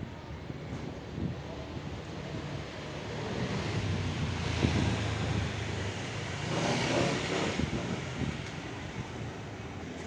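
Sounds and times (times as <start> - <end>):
vehicle engine passing: 3.2 - 8.3.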